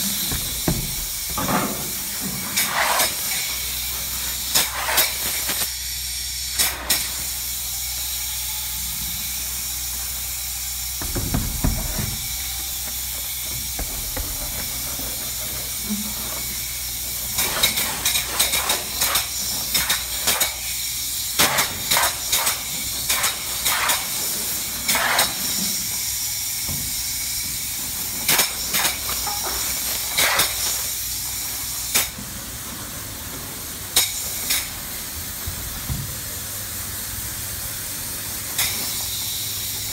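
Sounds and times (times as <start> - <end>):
spray foam gun hissing: 0.0 - 5.6, 9.1 - 17.4.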